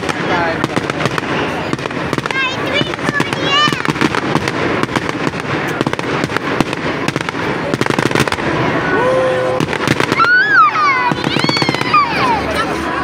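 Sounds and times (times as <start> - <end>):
fireworks exploding and crackling: 0.0 - 13.0
crowd calling out: 8.5 - 13.0.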